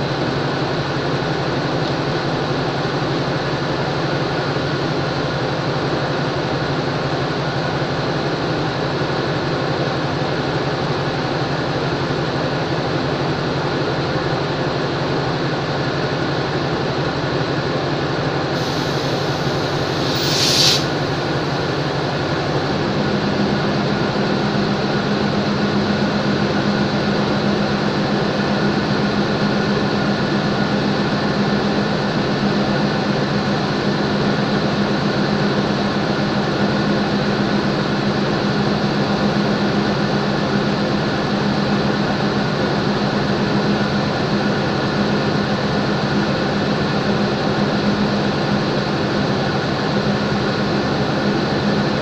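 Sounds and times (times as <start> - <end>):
locomotive idling drone: 18.5 - 27.4.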